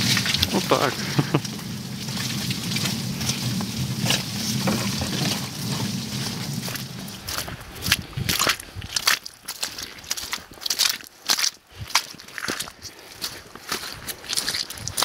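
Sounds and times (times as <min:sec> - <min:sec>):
wooden cart rumbling and rattling: 0:00.0 - 0:08.6
cart knocks: 0:01.5 - 0:07.3.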